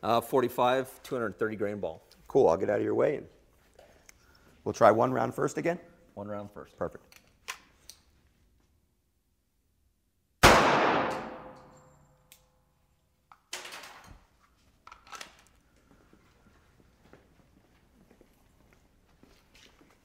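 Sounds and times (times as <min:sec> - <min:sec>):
handgun shot: 0:10.4 - 0:11.8.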